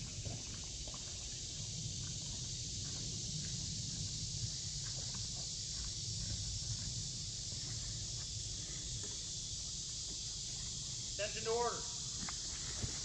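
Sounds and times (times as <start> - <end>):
insect chorus drone: 0.0 - 13.0
faint footsteps: 2.0 - 11.3, 12.1 - 13.0.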